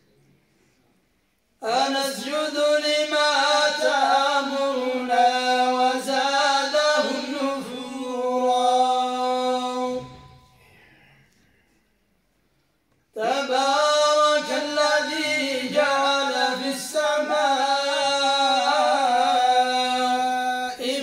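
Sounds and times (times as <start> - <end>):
men chanting in unison: 1.6 - 10.2, 13.2 - 21.0.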